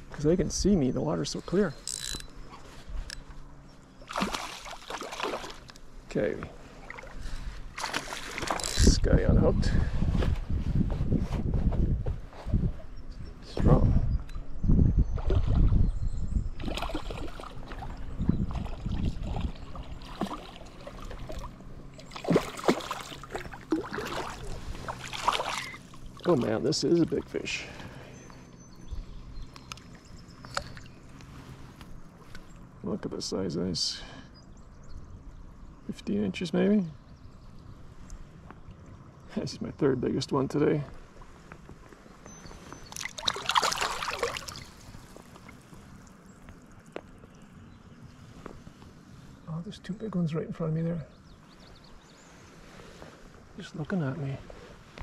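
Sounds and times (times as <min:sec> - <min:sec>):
fish splashing in water: 0:04.0 - 0:05.7, 0:16.6 - 0:26.3, 0:42.8 - 0:47.0.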